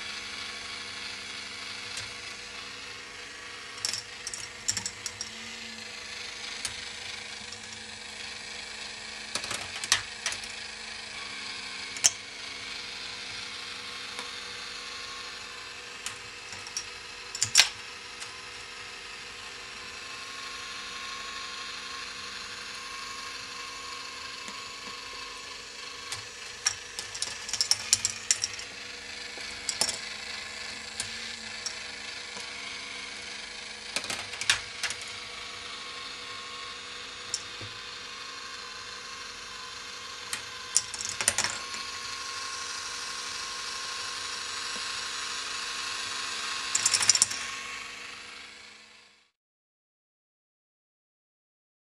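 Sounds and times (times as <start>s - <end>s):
plastic gears whirring: 0.1s - 49.1s
plastic balls clattering on track: 3.8s - 5.4s, 16.5s - 17.8s, 26.1s - 28.7s, 29.4s - 30.1s, 40.3s - 41.8s, 46.7s - 47.5s.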